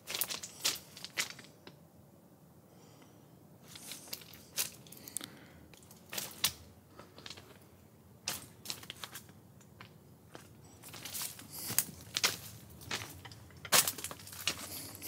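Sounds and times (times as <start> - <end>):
footsteps crunching on gravel: 8.3 - 15.0
twigs crackling and snapping: 10.9 - 15.0.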